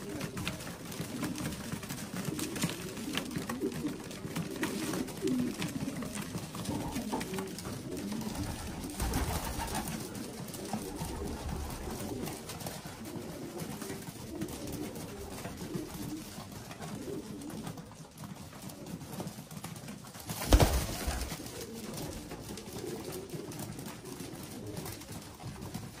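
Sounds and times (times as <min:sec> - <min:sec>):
pigeons cooing: 0:00.0 - 0:26.0
loud thump and rustle: 0:20.4 - 0:21.3.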